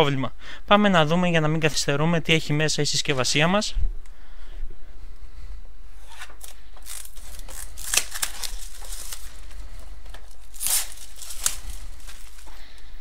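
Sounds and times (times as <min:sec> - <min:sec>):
plastic shrink wrap tearing: 0:06.1 - 0:12.6.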